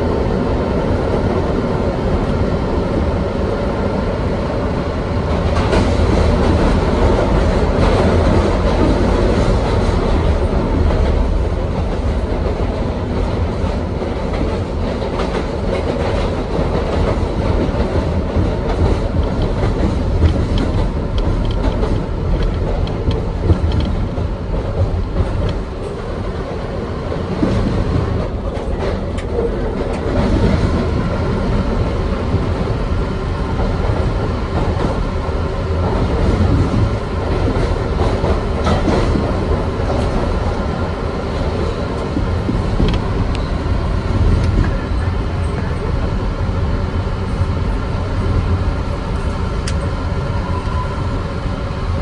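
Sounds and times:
subway train rumbling in tunnel: 0:00.0 - 0:52.0
wheels clicking over rail joints: 0:14.3 - 0:26.2.

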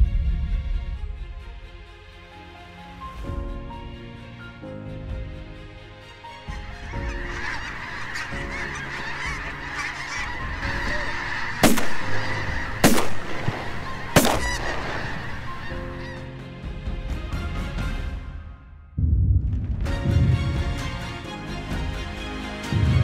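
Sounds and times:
flock of geese honking: 0:06.3 - 0:16.4
loud sharp bangs: 0:10.5 - 0:15.8.

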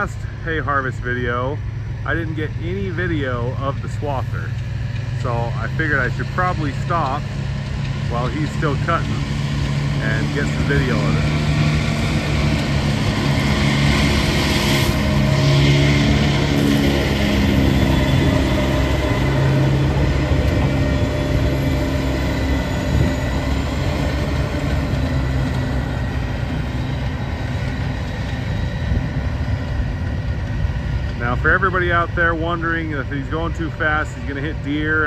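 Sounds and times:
swather engine drone: 0:00.0 - 0:35.0
wind buffeting microphone: 0:08.6 - 0:32.3.

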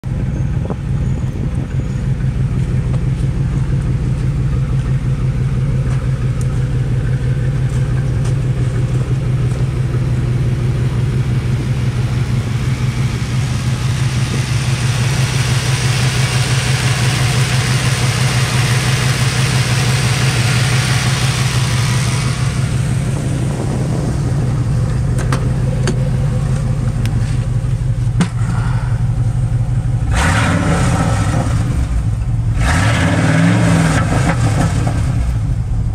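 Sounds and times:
truck engine idling: 0:00.0 - 0:30.2, 0:30.9 - 0:32.6, 0:35.0 - 0:35.9.

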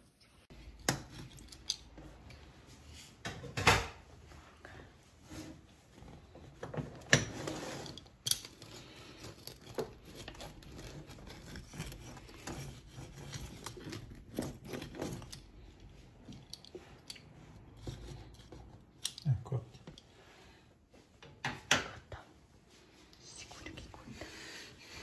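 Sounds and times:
pizza cutter scraping crust: 0:08.6 - 0:15.4.

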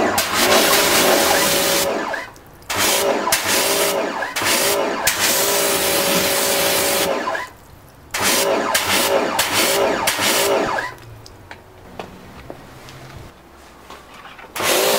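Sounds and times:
pressure washer motor humming: 0:00.0 - 0:07.5, 0:08.1 - 0:11.0, 0:14.6 - 0:14.9
pressure washer water spray hissing: 0:00.0 - 0:11.2.

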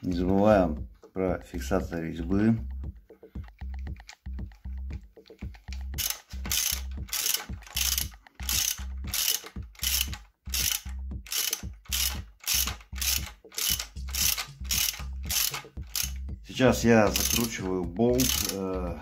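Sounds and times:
ratchet wrench clicking: 0:05.2 - 0:16.3, 0:17.0 - 0:18.8.

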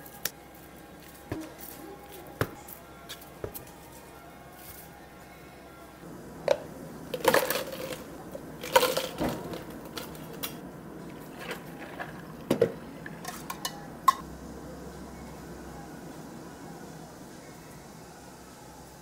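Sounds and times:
ice and cups clicking: 0:07.2 - 0:10.6
ice cubes clattering into plastic cups: 0:07.2 - 0:10.6, 0:11.3 - 0:12.8.

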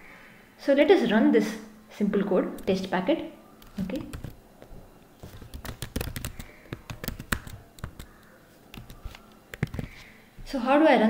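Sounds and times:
computer keyboard typing: 0:03.6 - 0:04.4, 0:05.2 - 0:10.0.

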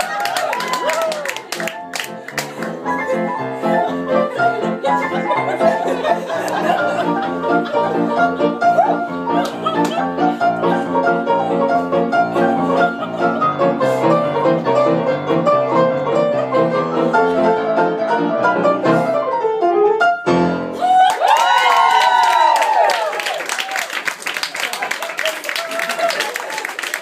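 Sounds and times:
audience cheering and applauding: 0:00.0 - 0:03.1, 0:20.8 - 0:27.0
grand piano fast passages: 0:01.3 - 0:20.9.

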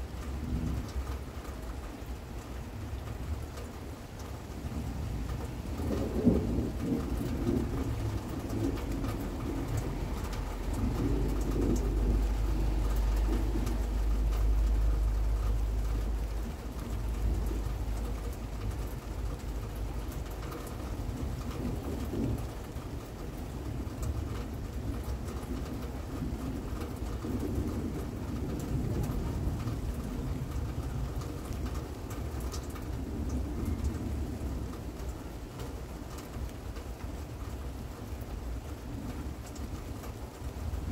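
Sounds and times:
steady rain: 0:00.0 - 0:40.9
thunder rumbling: 0:04.4 - 0:35.6.

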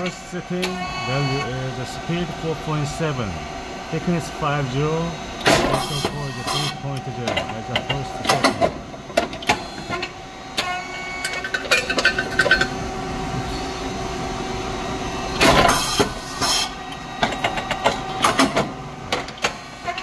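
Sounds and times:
machine motor humming: 0:00.0 - 0:11.5
mechanical clicks and knocks: 0:05.4 - 0:09.6.

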